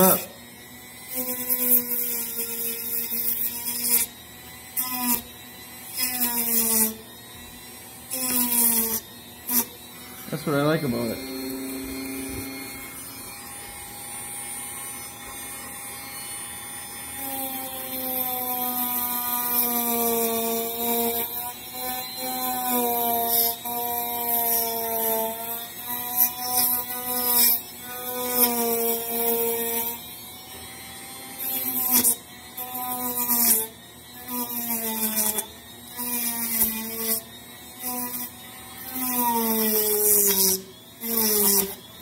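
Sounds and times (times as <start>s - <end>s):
rotary tool motor whine: 0.0s - 42.0s.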